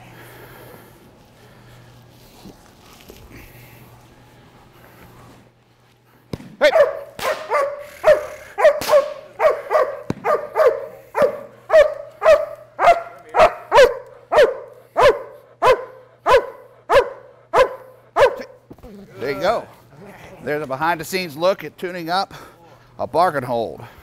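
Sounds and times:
dog barking: 6.6s - 18.6s.

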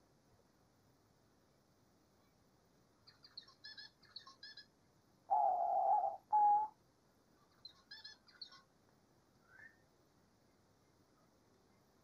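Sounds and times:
small birds chirping: 3.0s - 8.8s, 9.4s - 12.0s
dove cooing: 5.3s - 6.7s.

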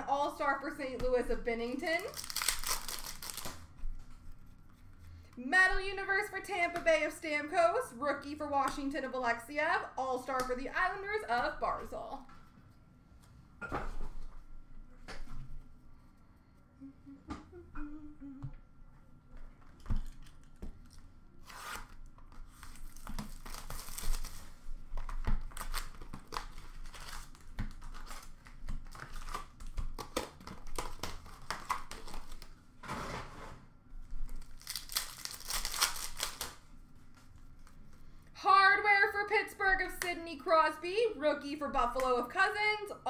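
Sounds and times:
card wrappers crinkling and ripping: 1.9s - 3.7s, 20.0s - 32.5s, 34.2s - 36.6s
cards shuffled and tapped: 24.9s - 32.4s.

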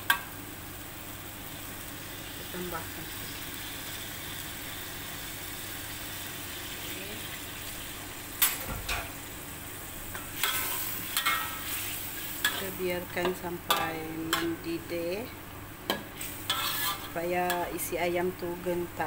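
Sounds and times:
food sizzling in a wok: 0.0s - 19.0s
metal spatula scraping wok: 10.2s - 12.8s, 16.2s - 17.7s.

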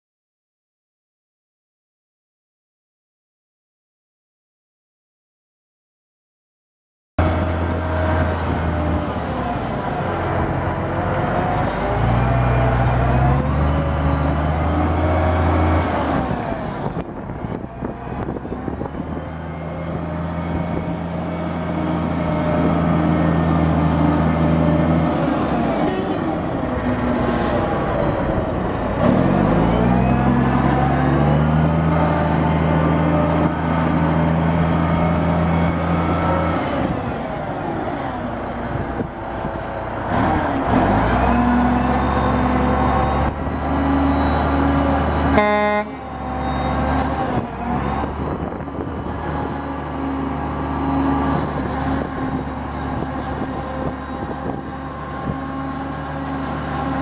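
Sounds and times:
diesel truck engine revving: 7.2s - 57.0s
truck horn blast: 45.2s - 46.2s.

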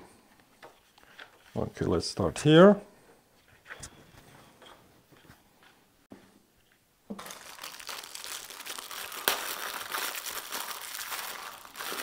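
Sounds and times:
crackly crinkling: 7.1s - 12.0s.

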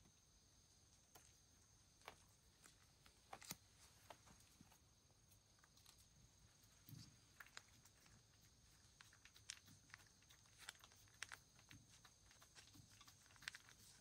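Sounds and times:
cat licking and eating: 5.2s - 14.0s.

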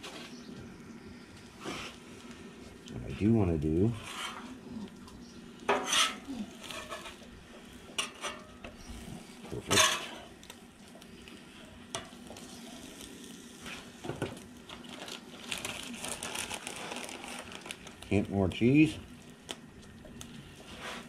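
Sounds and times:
metal spatula scraping griddle: 3.9s - 4.6s, 5.7s - 7.2s, 7.9s - 8.6s, 9.6s - 10.4s
food sizzling on a griddle: 5.5s - 19.9s.

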